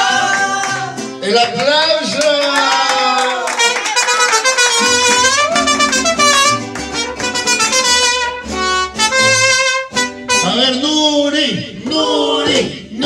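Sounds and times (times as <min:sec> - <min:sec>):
strummed guitars: 0:00.0 - 0:01.6, 0:04.2 - 0:10.8
trumpets playing melody: 0:03.6 - 0:10.8
stepping bass line: 0:04.7 - 0:09.6.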